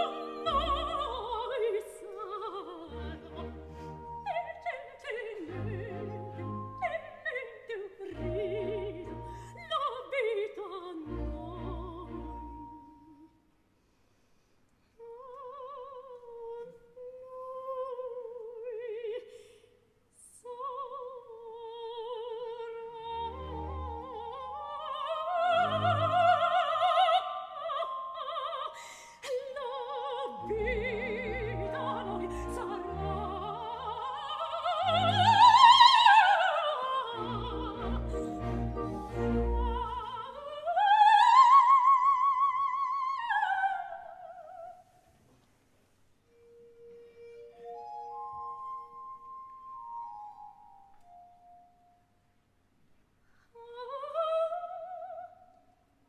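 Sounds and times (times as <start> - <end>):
orchestra playing: 0.0 - 4.4, 5.4 - 6.9, 30.4 - 36.0, 37.1 - 40.3
operatic soprano singing: 0.0 - 13.4, 15.0 - 19.5, 20.2 - 44.9, 53.6 - 55.6.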